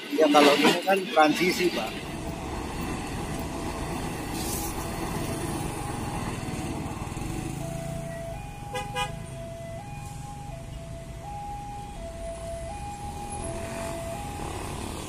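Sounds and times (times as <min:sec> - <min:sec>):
train wheels rumbling on rails: 0:00.7 - 0:08.4
small motorcycle engines idling: 0:02.0 - 0:15.0.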